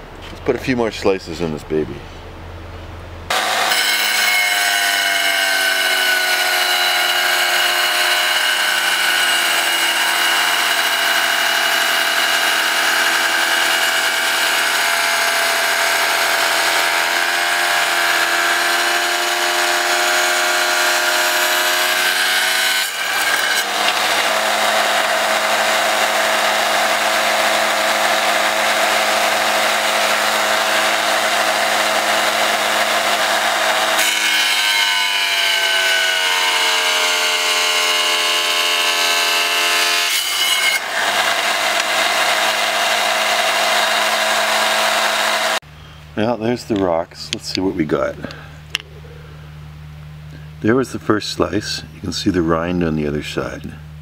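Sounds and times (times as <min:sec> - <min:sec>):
tile saw cutting rock: 0:03.3 - 0:45.6.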